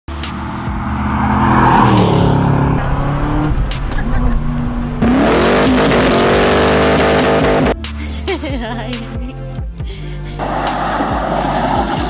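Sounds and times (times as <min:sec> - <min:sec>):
car engine passing: 0:00.1 - 0:07.8, 0:10.4 - 0:12.0
car engine revving: 0:00.1 - 0:07.8, 0:10.4 - 0:12.0.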